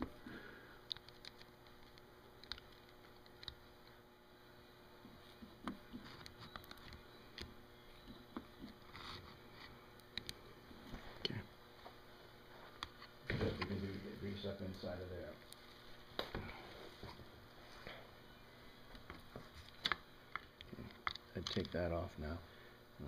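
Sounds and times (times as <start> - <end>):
light clicks and soft squishing: 0.8 - 4.1, 5.0 - 12.0, 15.4 - 16.3.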